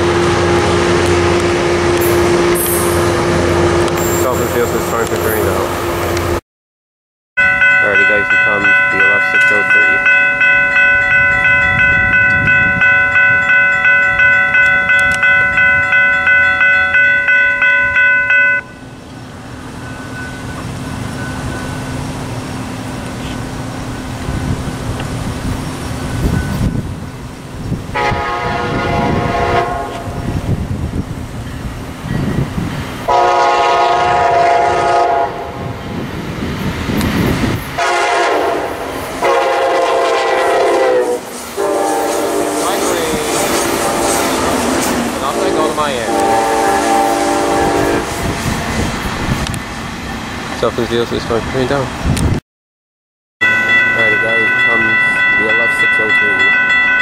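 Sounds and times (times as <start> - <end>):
crossing warning bell ringing: 0.0 - 5.8, 7.4 - 23.4, 25.8 - 30.5, 31.4 - 35.3, 42.6 - 48.3, 53.4 - 57.0
locomotive air horn blasts: 27.9 - 30.2, 33.1 - 35.7, 37.8 - 44.5, 45.2 - 48.4.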